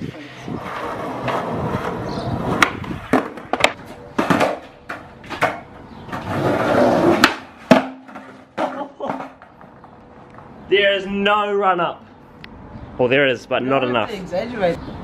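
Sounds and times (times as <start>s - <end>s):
skateboard wheels rolling on concrete: 0.0s - 11.3s.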